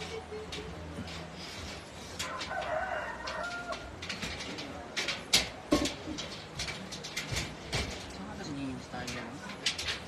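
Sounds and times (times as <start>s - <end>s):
steel shelving parts clanking: 0.0s - 10.0s
rooster crowing: 2.2s - 3.9s.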